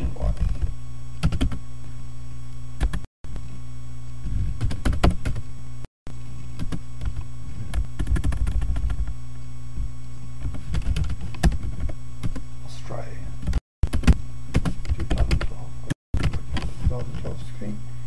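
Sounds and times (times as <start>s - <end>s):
low electrical hum: 0.0s - 18.0s
computer keyboard typing: 1.2s - 1.6s, 2.8s - 3.0s, 4.6s - 5.4s, 6.6s - 9.1s, 10.4s - 12.4s, 13.4s - 15.5s, 16.2s - 16.4s.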